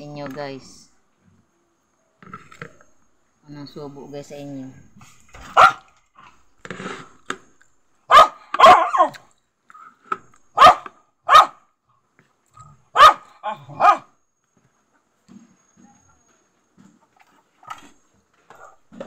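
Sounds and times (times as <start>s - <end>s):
dog barking: 5.4s - 5.9s, 8.1s - 9.2s, 10.6s - 11.6s, 12.9s - 14.1s.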